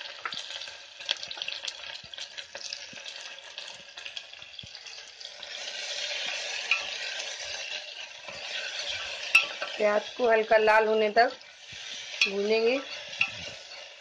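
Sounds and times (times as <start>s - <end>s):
onions sizzling in hot oil: 0.0s - 14.0s
metal spoon stirring: 4.8s - 10.5s, 11.4s - 14.0s.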